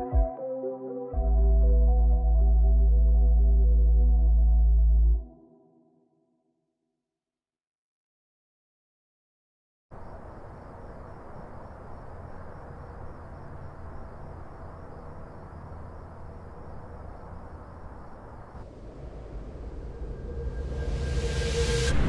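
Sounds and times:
distant industrial rumble: 10.0s - 22.0s
faint high wavering whine: 10.0s - 22.0s.

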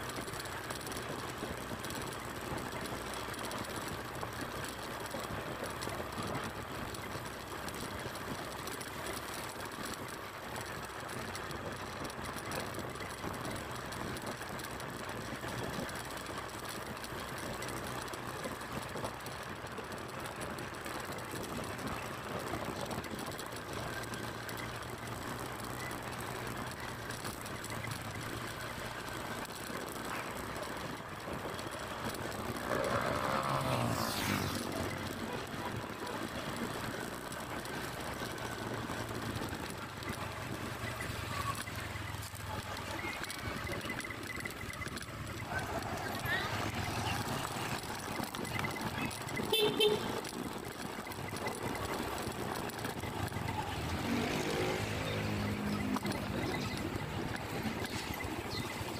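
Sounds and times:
road and wind noise: 0.0s - 58.9s
small motorcycle engine running: 0.0s - 58.9s
nearby vehicle passing: 30.8s - 58.9s.

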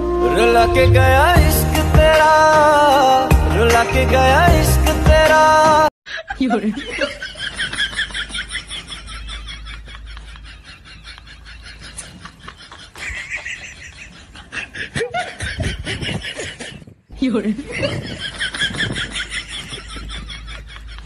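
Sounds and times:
high-pitched laughter: 6.1s - 16.9s.

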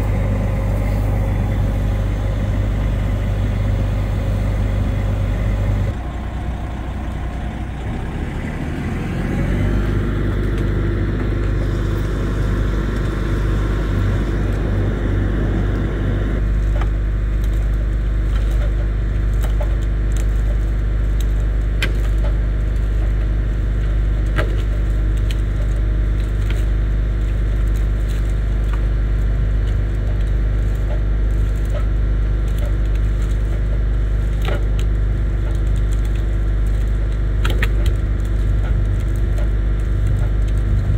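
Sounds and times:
diesel truck engine running: 0.0s - 17.3s
wood and branches breaking: 16.4s - 40.9s.

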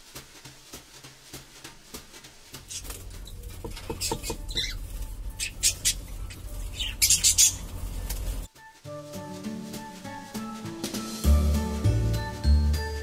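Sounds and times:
cockatiels calling: 2.7s - 8.5s
low steady rumble: 2.8s - 8.5s.

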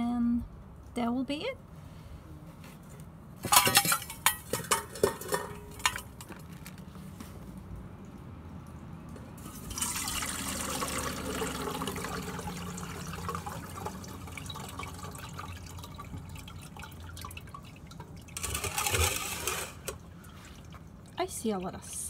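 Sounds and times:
slurry pouring through a strainer: 18.4s - 20.6s.

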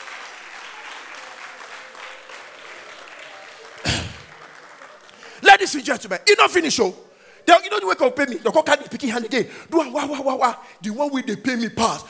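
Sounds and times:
crowd voices: 0.0s - 5.4s
audience applauding: 0.0s - 5.8s.

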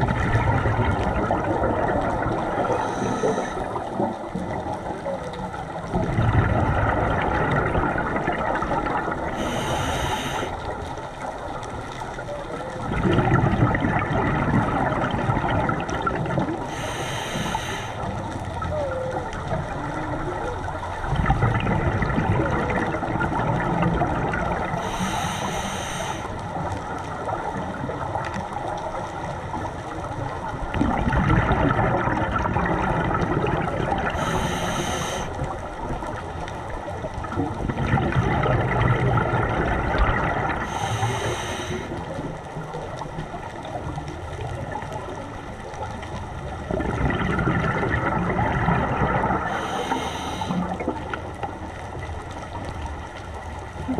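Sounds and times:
exhaled bubbles rushing: 0.0s - 25.6s, 26.2s - 53.9s
regulator inhale hiss: 2.6s - 3.9s, 9.4s - 10.8s, 16.7s - 18.2s, 24.7s - 26.6s, 34.1s - 35.5s, 40.6s - 42.2s, 49.4s - 50.8s.

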